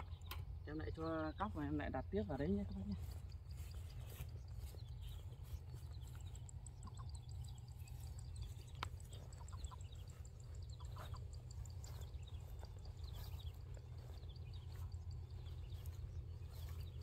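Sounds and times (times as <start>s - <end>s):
steady low rumble: 0.0s - 17.0s.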